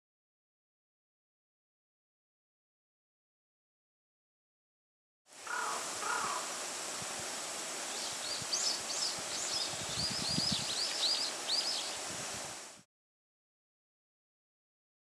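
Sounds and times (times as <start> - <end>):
wind rustling in bamboo: 5.3 - 12.9
small bird calling: 5.4 - 6.7, 7.8 - 12.0.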